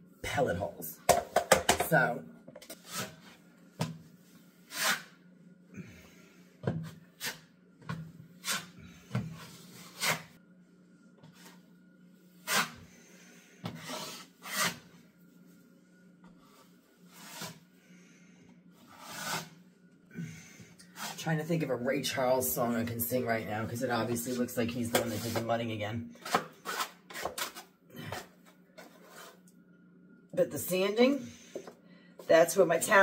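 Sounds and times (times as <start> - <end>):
taping knife scraping drywall: 4.7 - 5.1, 13.8 - 14.8, 18.9 - 19.5, 26.2 - 27.6.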